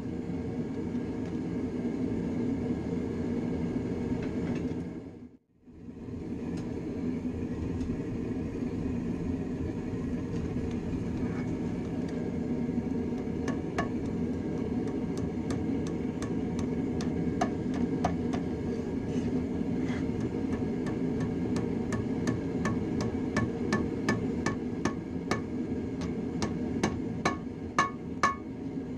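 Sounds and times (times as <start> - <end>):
steady low roar: 5.7 - 22.0
hammer striking metal on anvil: 13.4 - 14.2, 20.2 - 28.5.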